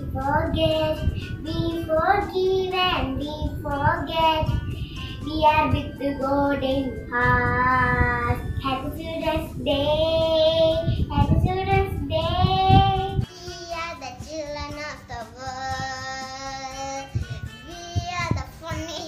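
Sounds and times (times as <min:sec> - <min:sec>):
child singing long held notes: 0:05.3 - 0:19.0.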